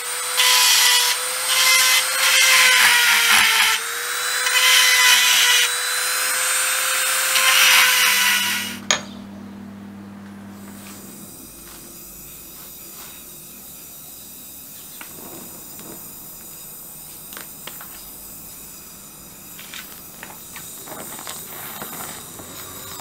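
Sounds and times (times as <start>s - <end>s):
gas torch flame hissing: 10.6s - 23.0s.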